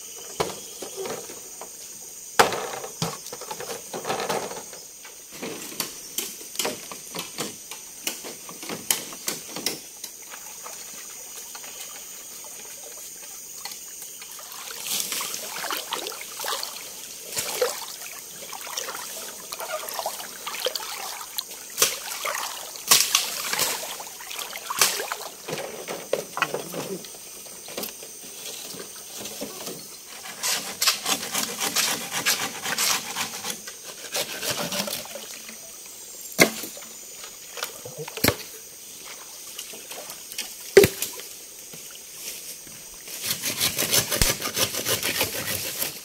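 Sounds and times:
water trickling and splashing: 9.4 - 27.3, 34.6 - 43.2.

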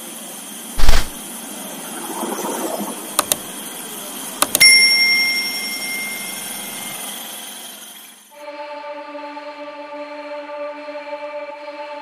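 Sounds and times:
sharp clicks: 0.8 - 1.2, 3.2 - 3.5, 4.4 - 4.7
bell ding: 4.5 - 7.0.

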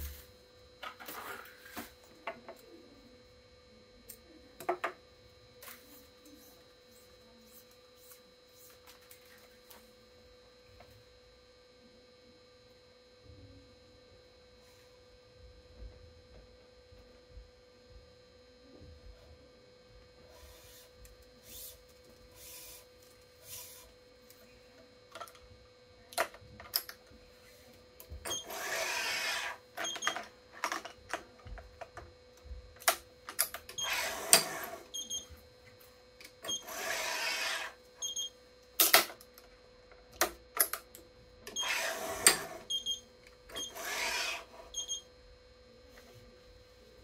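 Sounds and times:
faint steady hum: 0.0 - 47.0
short electronic beeps: 44.7 - 45.1.

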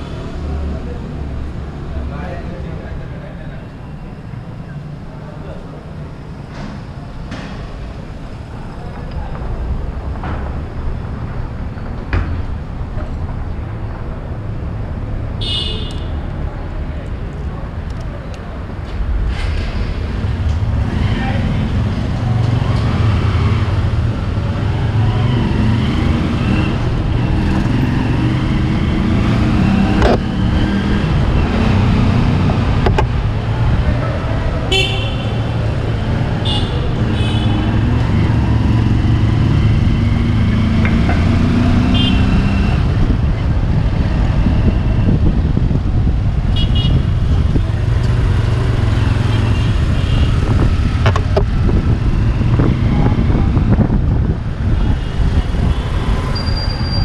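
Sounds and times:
traffic: 0.0 - 57.0
vehicle horn beeps: 15.4 - 16.1, 34.7 - 35.4.

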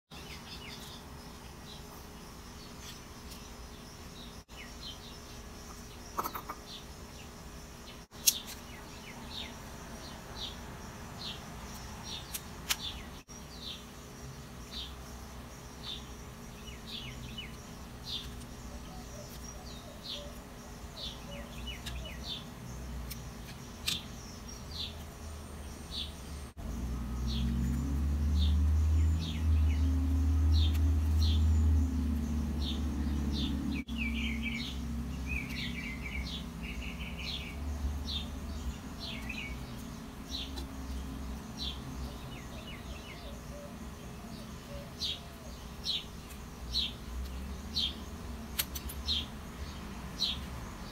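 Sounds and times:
small birds chirping: 0.1 - 50.9
bird trill: 15.7 - 47.0.

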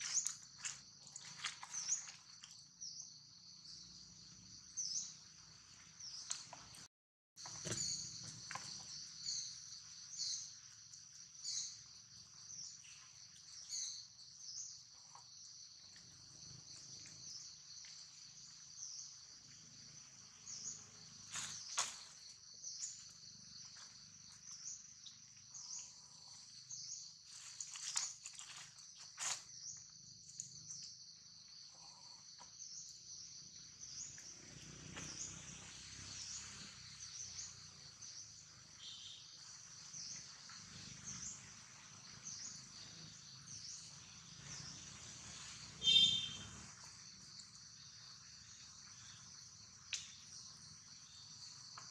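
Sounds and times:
insects droning: 0.0 - 51.9
dry leaves crackling: 27.3 - 29.4.

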